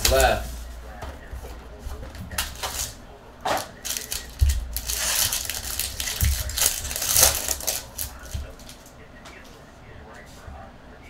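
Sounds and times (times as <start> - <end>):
foil wrapper crinkling and tearing: 2.4 - 3.0, 3.7 - 8.9.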